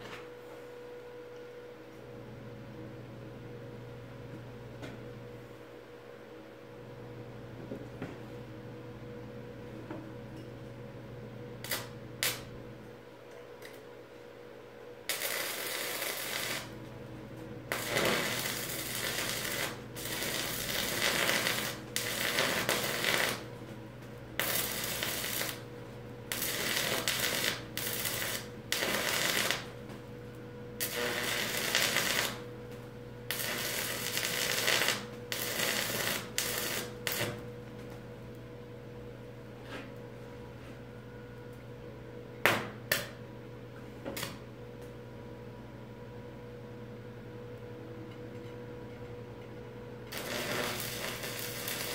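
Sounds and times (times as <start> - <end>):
steady low hum: 0.0 - 51.9
arc welding crackling: 11.6 - 12.6, 15.0 - 16.9, 17.6 - 29.9, 30.8 - 32.6, 33.2 - 37.4, 50.0 - 51.9.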